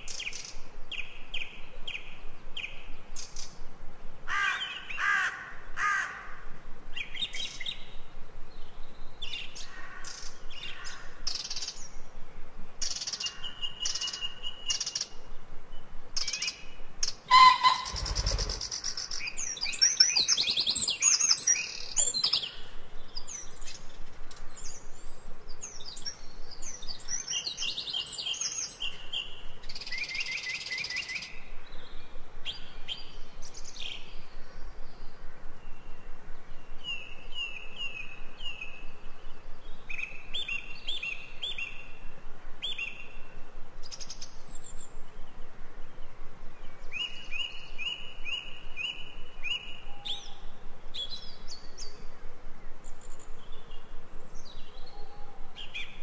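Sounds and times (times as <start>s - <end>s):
birds chirping and trilling: 4.3s - 12.2s, 12.8s - 56.0s
short repeated bird notes: 17.3s - 19.2s.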